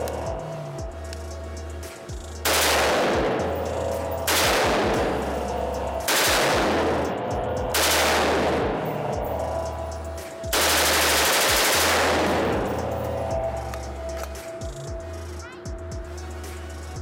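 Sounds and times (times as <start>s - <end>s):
rifle shots echoing indoors: 2.4s - 9.4s, 10.5s - 13.4s.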